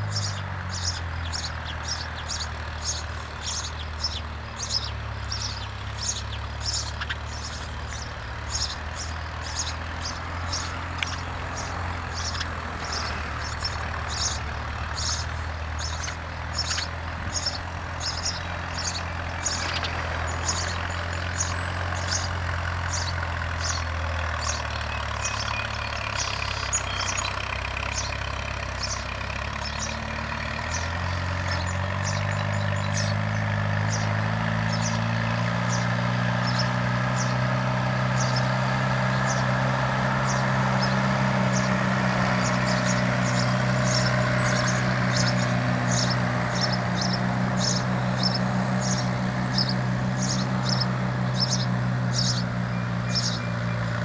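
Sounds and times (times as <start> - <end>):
engine humming: 0.0 - 54.0
small bird chirping: 0.0 - 54.0.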